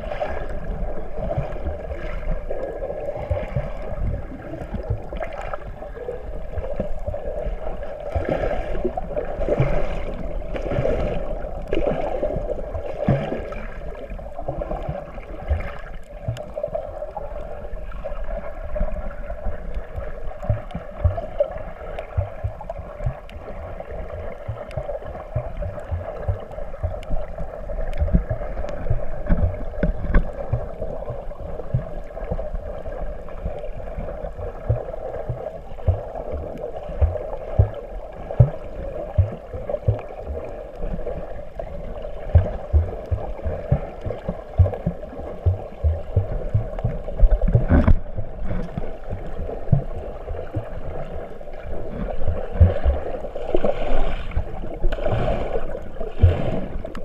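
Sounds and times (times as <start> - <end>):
low water thumps: 0.0 - 5.7, 20.3 - 23.4, 24.4 - 32.6, 34.4 - 57.0
underwater hum: 0.0 - 57.0.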